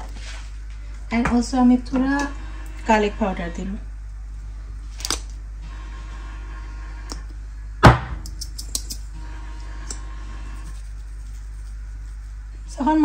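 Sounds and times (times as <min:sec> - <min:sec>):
steady low hum: 0:00.0 - 0:13.0
loud knock: 0:07.8 - 0:08.2
spice shakers clicking: 0:08.2 - 0:09.1.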